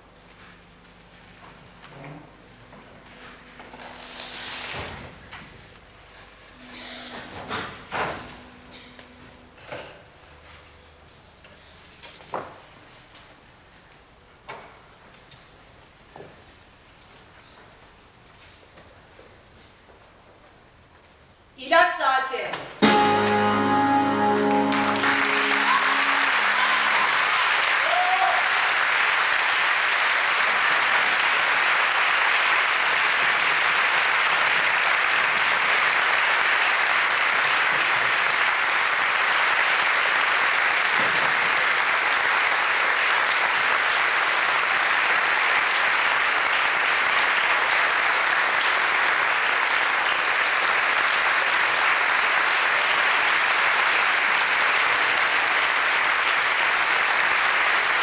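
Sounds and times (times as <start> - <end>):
music: 6.5 - 9.7, 22.8 - 27.5
audience applauding: 22.9 - 58.0.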